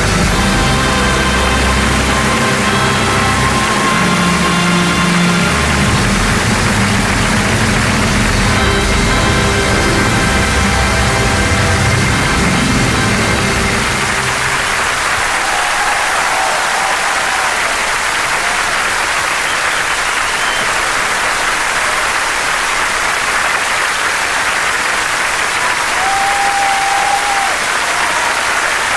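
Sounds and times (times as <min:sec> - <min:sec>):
orchestral music: 0:00.0 - 0:19.2
audience applauding: 0:00.0 - 0:28.9.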